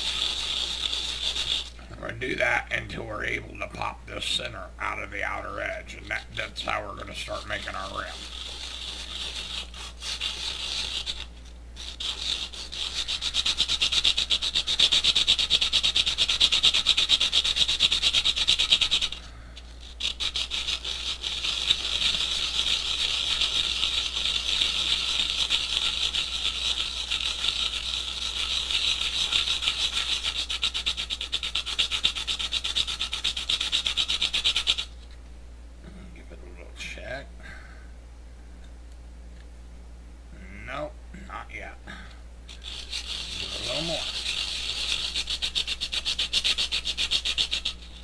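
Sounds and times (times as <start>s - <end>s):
can lid scraping on sandpaper: 0.0s - 1.8s, 7.0s - 19.2s, 19.8s - 34.9s, 42.5s - 48.0s.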